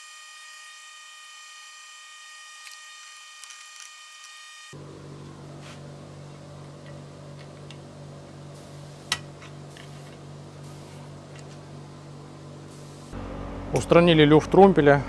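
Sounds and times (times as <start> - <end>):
steady low hum: 4.8 - 15.0.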